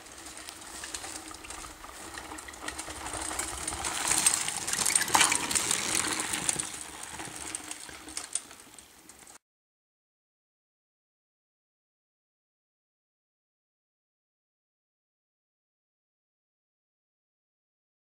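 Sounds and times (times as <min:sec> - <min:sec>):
mountain bikes riding past: 0:00.0 - 0:09.4.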